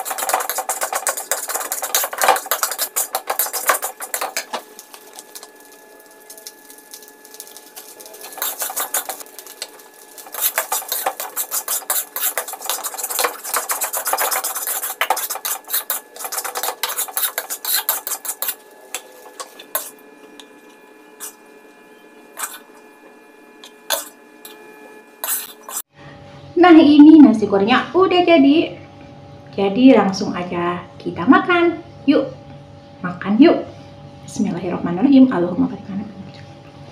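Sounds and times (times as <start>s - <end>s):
spatula scraping a wok: 0.0s - 20.1s, 21.1s - 21.5s, 22.3s - 22.8s, 23.6s - 24.6s, 25.2s - 25.9s.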